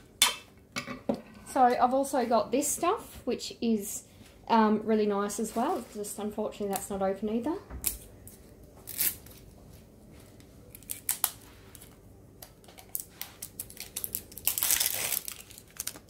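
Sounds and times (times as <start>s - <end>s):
packet clicks and crinkles: 10.7s - 16.0s
packet rustling: 10.7s - 16.0s.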